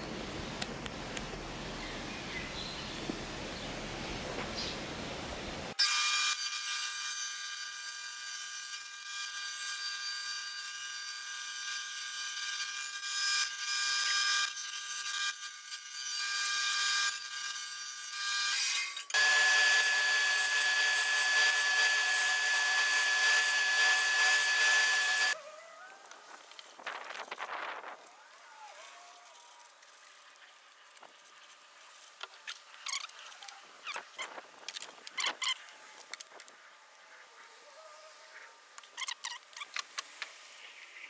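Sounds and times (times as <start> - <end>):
bandsaw cutting plywood: 5.8 - 25.4
sanding drum high whine: 19.1 - 25.4.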